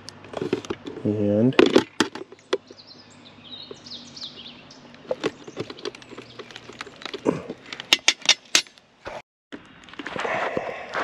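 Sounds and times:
bird chirping: 0:02.2 - 0:07.9.

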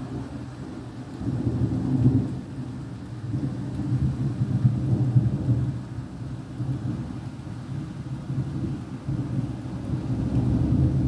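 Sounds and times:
rolling thunder: 0:00.0 - 0:05.8, 0:08.2 - 0:11.0.

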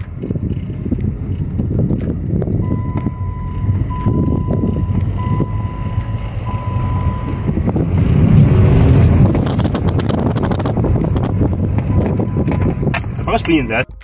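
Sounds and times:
diesel engine rumble: 0:00.0 - 0:14.0
electronic warning beep: 0:02.6 - 0:07.5.

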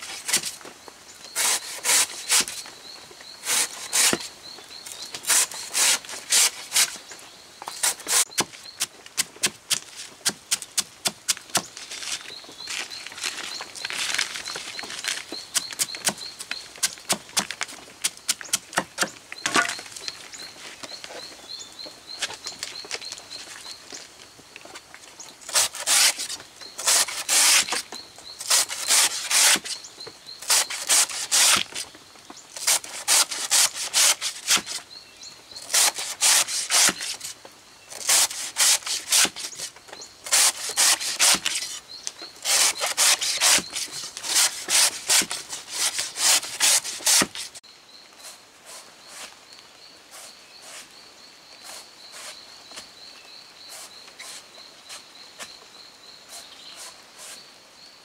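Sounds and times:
blade rasping on wood: 0:01.4 - 0:02.4, 0:26.8 - 0:27.8, 0:28.5 - 0:29.7, 0:32.6 - 0:34.8, 0:35.7 - 0:37.2, 0:38.0 - 0:39.4, 0:40.3 - 0:41.6, 0:42.4 - 0:47.5.

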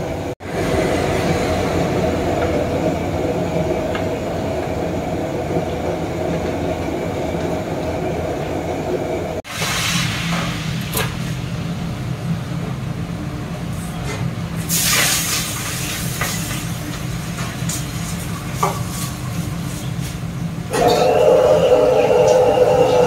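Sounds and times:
gas burner roar: 0:09.4 - 0:23.0
oil sizzling in a wok: 0:14.6 - 0:19.5.

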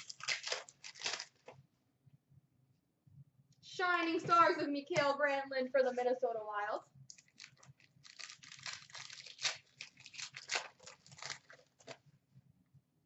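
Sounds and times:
foil wrapper crinkling: 0:00.0 - 0:01.6, 0:07.2 - 0:12.0.

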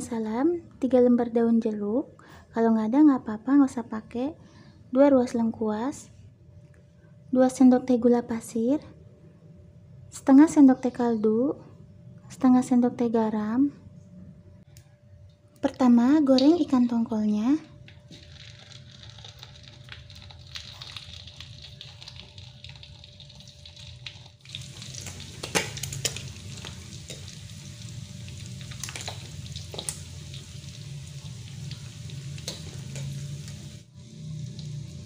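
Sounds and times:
fish sizzling in hot oil: 0:18.1 - 0:35.0
metal tongs clicking on pan: 0:32.4 - 0:33.2.

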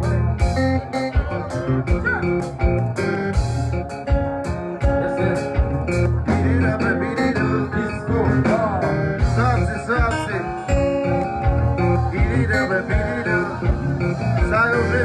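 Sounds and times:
live band music: 0:00.0 - 0:15.0
person singing: 0:04.5 - 0:15.0.

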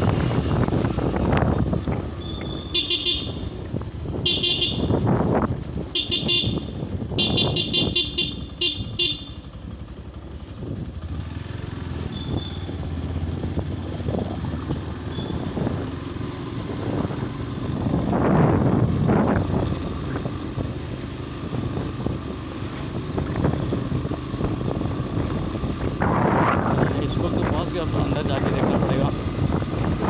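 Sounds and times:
motorbike rumble and wind: 0:00.0 - 0:30.0
horn high-pitched pulses: 0:02.2 - 0:03.5, 0:04.3 - 0:05.0, 0:06.0 - 0:09.4.

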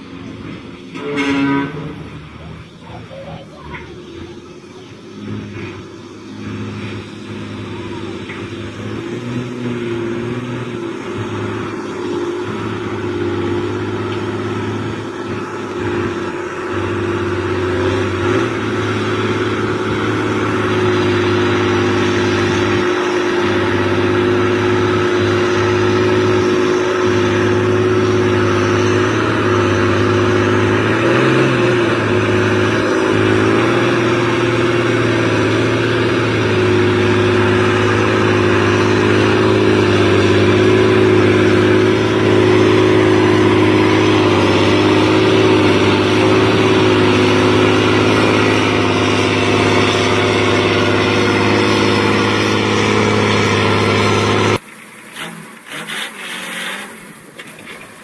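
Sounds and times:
heavy diesel truck engine: 0:00.0 - 0:58.0.

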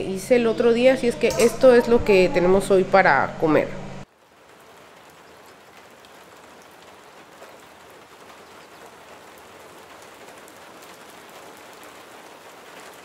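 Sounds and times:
steady rain falling: 0:04.0 - 0:13.0.

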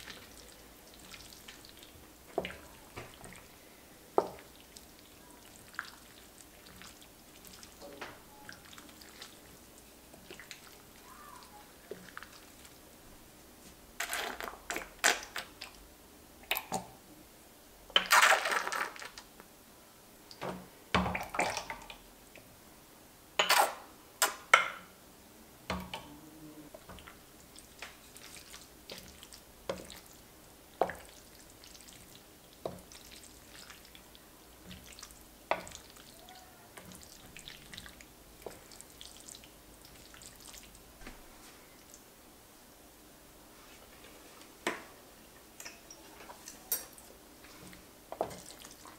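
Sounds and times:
spatula squelching in mac and cheese: 0:00.0 - 0:03.6, 0:04.2 - 0:12.8, 0:26.6 - 0:40.8, 0:46.1 - 0:48.9.

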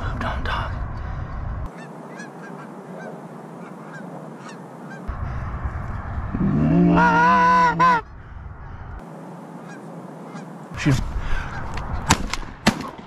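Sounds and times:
goose honk: 0:01.7 - 0:05.1, 0:09.6 - 0:10.5
person shouting: 0:06.7 - 0:08.0
shotgun blasts: 0:12.0 - 0:13.0.

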